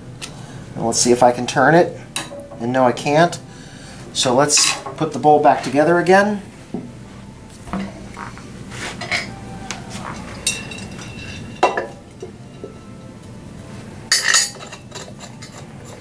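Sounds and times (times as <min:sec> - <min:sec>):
metal knocks and clinks: 0:10.1 - 0:12.4
small metal parts clinking in bowl: 0:10.4 - 0:12.2, 0:14.1 - 0:16.0.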